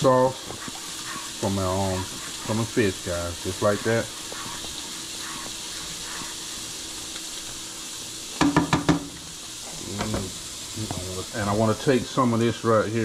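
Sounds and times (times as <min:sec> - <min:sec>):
sauce sizzling in a skillet: 0:00.0 - 0:13.0
knocks on a skillet: 0:08.4 - 0:09.2.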